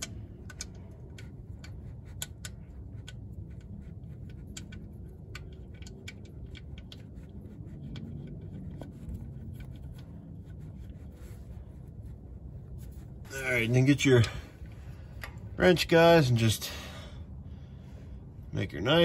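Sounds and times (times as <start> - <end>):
metallic clicks and scratches: 0.0 - 14.4
low steady rumble: 0.0 - 19.0.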